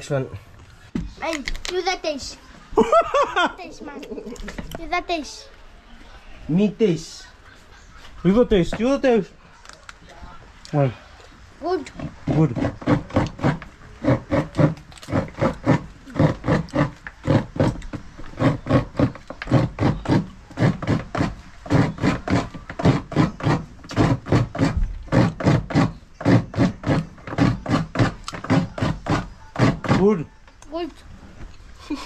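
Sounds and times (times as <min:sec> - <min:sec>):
coconut being scraped: 0:11.8 - 0:30.3.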